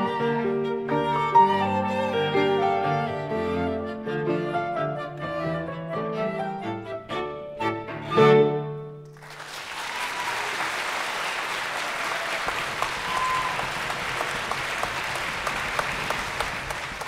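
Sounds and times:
violin cello and flute chord: 0:00.0 - 0:08.9
audience applause: 0:09.1 - 0:17.0.

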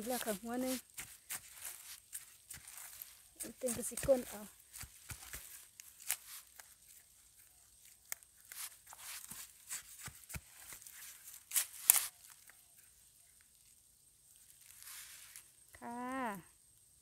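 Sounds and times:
digging tool scraping soil: 0:00.0 - 0:12.4
dry leaves rustling: 0:00.0 - 0:15.7.

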